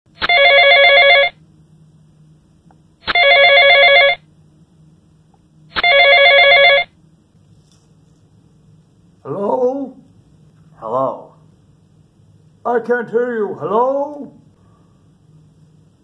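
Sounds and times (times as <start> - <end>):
telephone ringing: 0.2 - 1.4, 3.0 - 4.3, 5.7 - 7.0.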